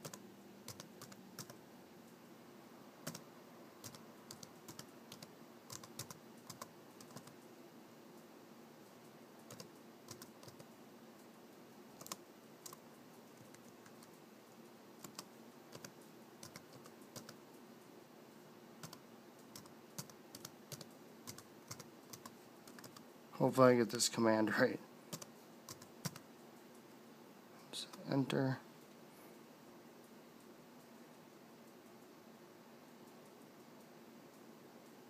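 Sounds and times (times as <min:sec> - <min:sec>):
laptop keyboard typing: 0:00.0 - 0:01.6, 0:03.0 - 0:07.4, 0:09.4 - 0:10.7, 0:12.0 - 0:14.2, 0:15.0 - 0:17.4, 0:18.8 - 0:23.1, 0:25.1 - 0:26.3.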